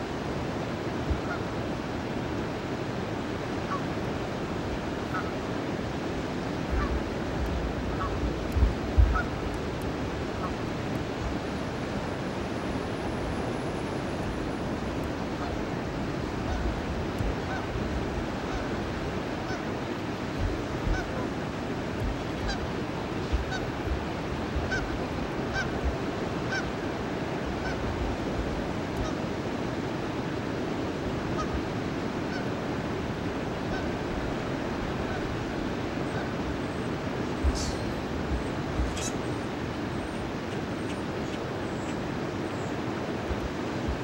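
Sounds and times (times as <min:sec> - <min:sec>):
steady rushing noise: 0:00.0 - 0:44.0
geese honking: 0:05.1 - 0:05.4, 0:06.6 - 0:09.6, 0:14.3 - 0:17.8, 0:18.4 - 0:19.8, 0:20.8 - 0:21.4, 0:22.2 - 0:23.9, 0:24.5 - 0:25.8, 0:26.4 - 0:26.8, 0:31.4 - 0:31.6, 0:32.3 - 0:32.5, 0:33.7 - 0:34.0, 0:34.9 - 0:42.0.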